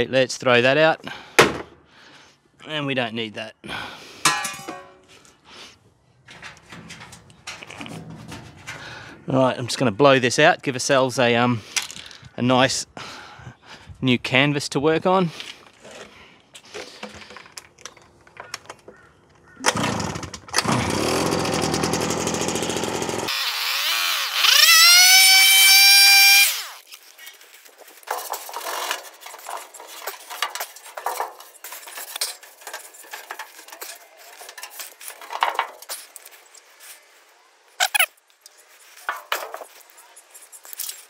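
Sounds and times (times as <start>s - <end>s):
light clatter and handling noises: 6.2s - 9.4s, 15.4s - 19.5s, 26.8s - 37.3s, 37.9s - 41.0s.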